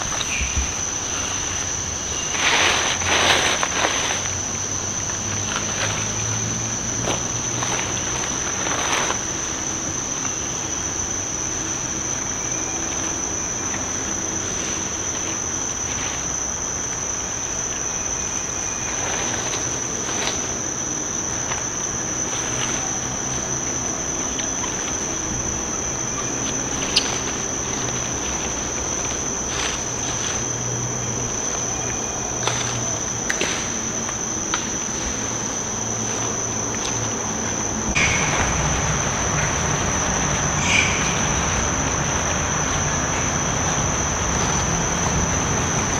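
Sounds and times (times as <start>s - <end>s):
insects high-pitched drone: 0.0s - 45.9s.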